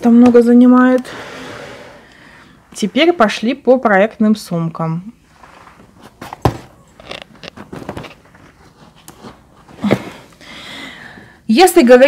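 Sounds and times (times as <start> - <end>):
bags rustling: 5.2 - 10.4.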